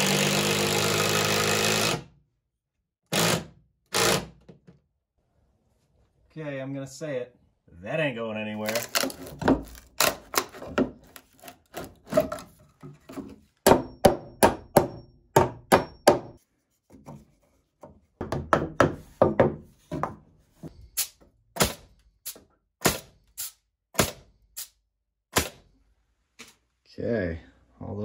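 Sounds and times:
hammer knocking on wood: 0:13.6 - 0:16.4, 0:17.8 - 0:20.2.

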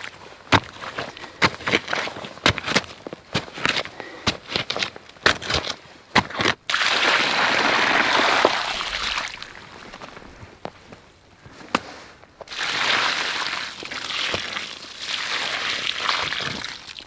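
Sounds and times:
water splashing into wet ash: 0:06.7 - 0:10.1.

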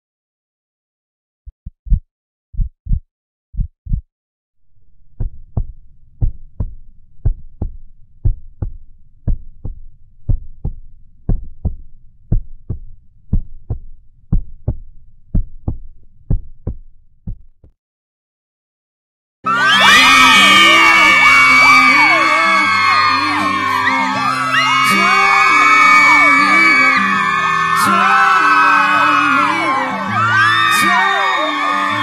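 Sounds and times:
heartbeat thumps: 0:01.5 - 0:04.1, 0:04.9 - 0:17.8.

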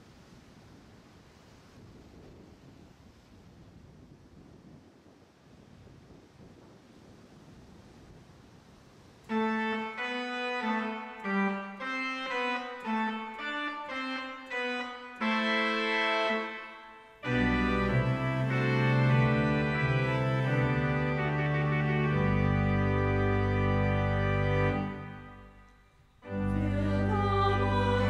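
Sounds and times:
organ keyboard music: 0:09.3 - 0:28.0.

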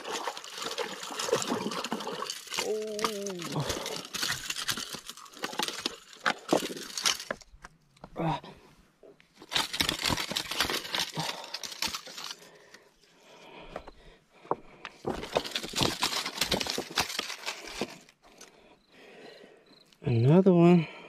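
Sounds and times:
shoes crunching over rocks: 0:14.5 - 0:18.1.

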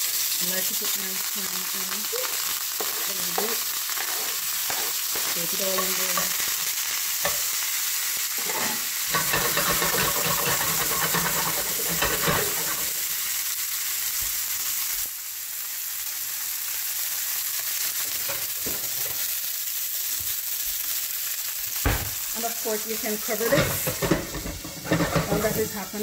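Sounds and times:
vegetables sizzling in oil: 0:00.0 - 0:26.0
stirring in a pot: 0:02.2 - 0:07.5, 0:08.4 - 0:12.9, 0:23.5 - 0:25.7.

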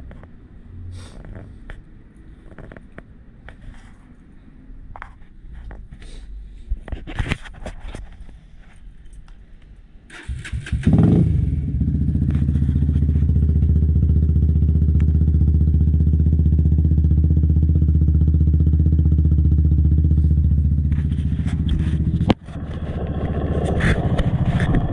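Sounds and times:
motorcycle engine starting: 0:10.1 - 0:24.9
motorcycle engine idling: 0:10.3 - 0:24.9.

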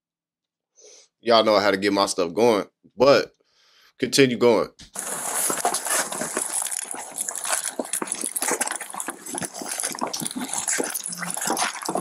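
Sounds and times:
clothing rustling on microphone: 0:04.9 - 0:12.0.

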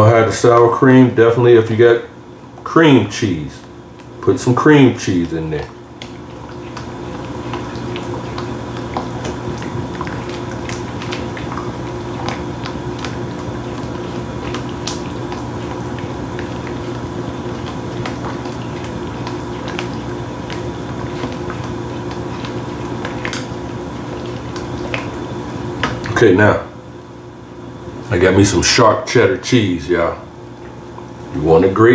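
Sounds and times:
steady hum: 0:00.0 - 0:31.9
sauce squishing while stirred: 0:02.2 - 0:26.2.

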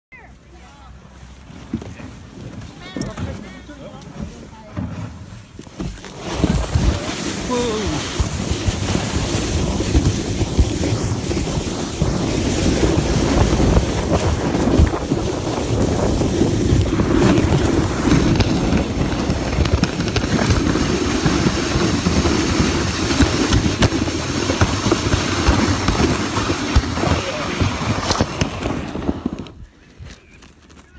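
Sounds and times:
wind buffeting microphone: 0:06.3 - 0:30.2.

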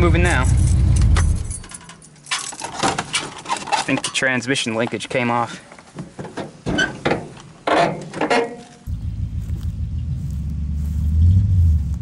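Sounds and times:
car engine idling: 0:08.9 - 0:12.0.

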